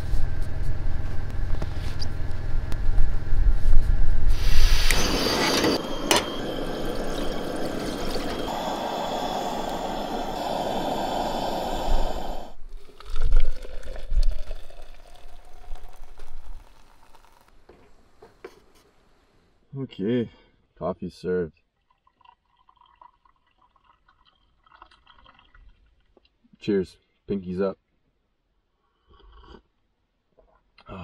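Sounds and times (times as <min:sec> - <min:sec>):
coffee pouring into cup: 0:04.4 - 0:17.9, 0:21.8 - 0:26.2.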